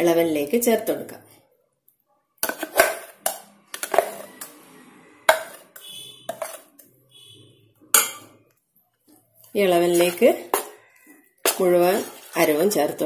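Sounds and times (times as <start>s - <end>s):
spoon knocking on metal pan: 10.0s - 10.8s.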